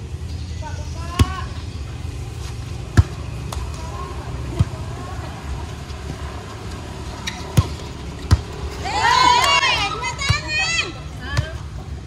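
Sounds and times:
faint voices: 0.5s - 12.0s
volleyball being hit: 2.8s - 3.8s, 7.3s - 8.6s.

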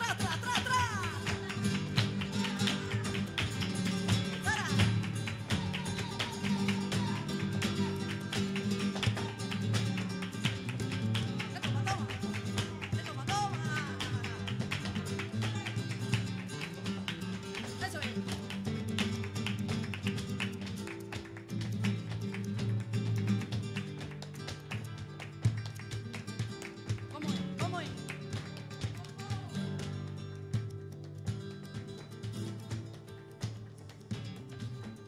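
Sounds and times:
plucked guitar: 0.0s - 35.0s
person singing: 4.4s - 8.3s.

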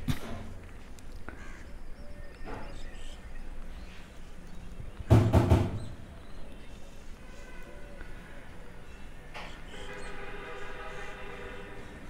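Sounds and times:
loud pulsed bird call: 9.5s - 12.0s.

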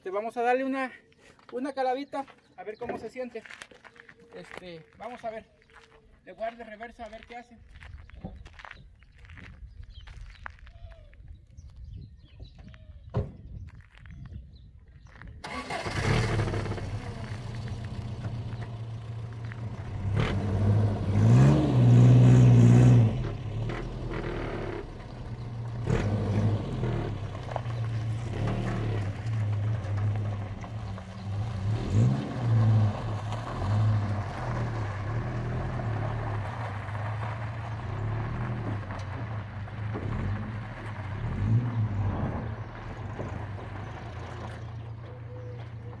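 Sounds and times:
pickup truck engine under load: 15.4s - 45.9s.

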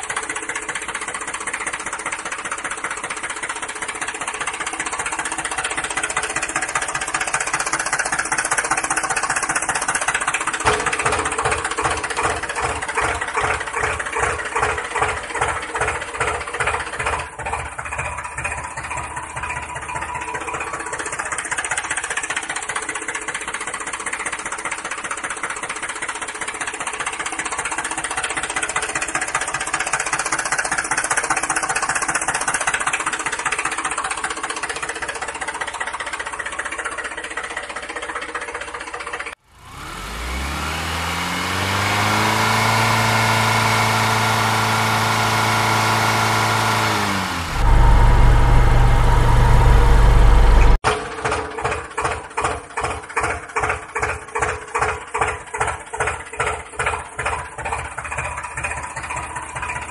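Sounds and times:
engine chugging: 0.0s - 59.9s
rough-running engine: 0.0s - 59.9s
engine starting and revving: 5.4s - 22.8s, 39.3s - 56.5s
loud low hum: 10.6s - 11.9s, 42.4s - 50.8s.

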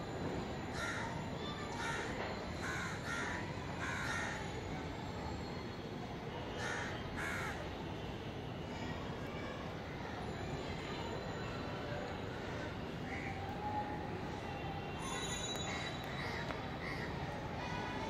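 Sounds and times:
crow cawing: 2.6s - 4.4s, 6.6s - 7.6s.

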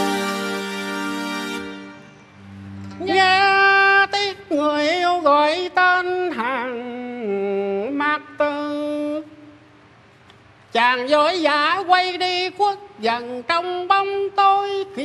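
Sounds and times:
man singing slow melismatic melody: 2.4s - 9.6s.

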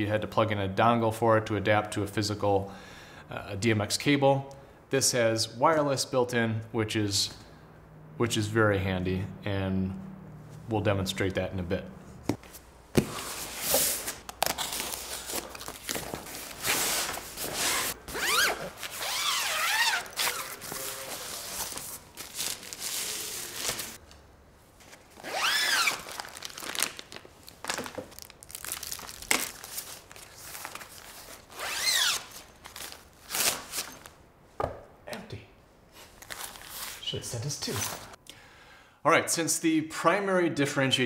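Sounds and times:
plastic sleeve crinkling: 13.5s - 24.1s, 24.8s - 34.1s, 36.0s - 38.1s.

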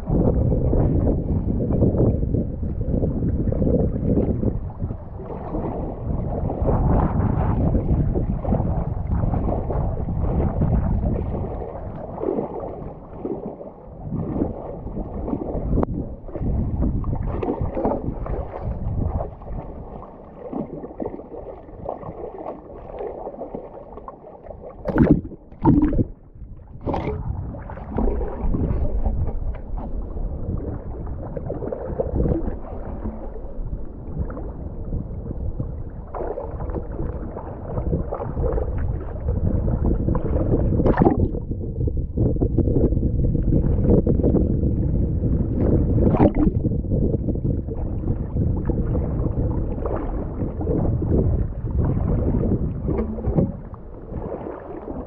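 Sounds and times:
water sloshing around wading legs: 17.1s - 34.3s, 52.0s - 55.0s
sharp splashes or knocks: 24.9s - 26.2s, 52.9s - 53.8s.

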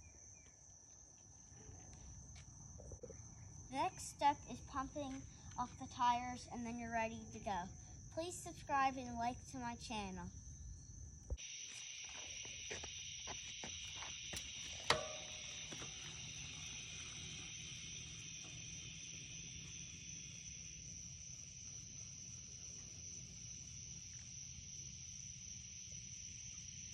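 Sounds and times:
crickets trilling: 0.0s - 26.9s
sharp ringing click: 14.9s - 15.4s.

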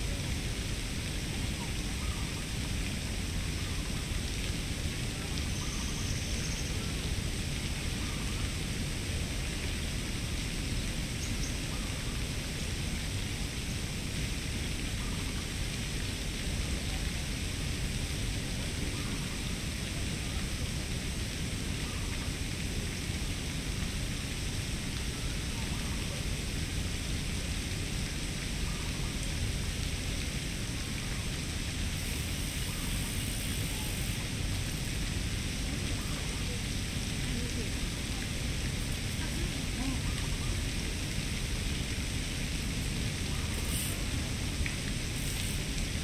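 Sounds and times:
even hiss: 0.0s - 46.0s.

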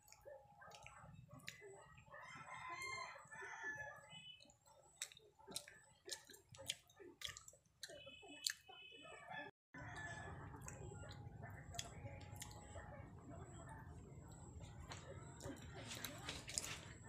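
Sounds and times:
rooster crowing: 2.2s - 4.0s.

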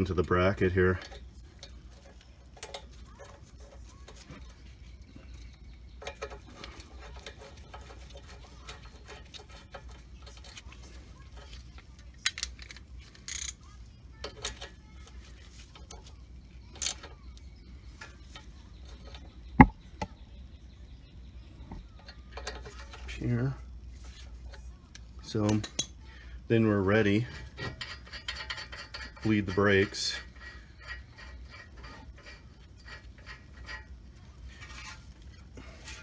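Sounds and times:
metal tools clinking: 5.3s - 16.1s, 21.9s - 23.6s, 27.0s - 36.0s.

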